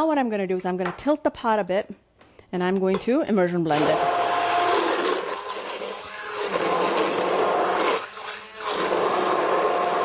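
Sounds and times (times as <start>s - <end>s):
immersion blender pureeing soup: 3.7s - 10.0s.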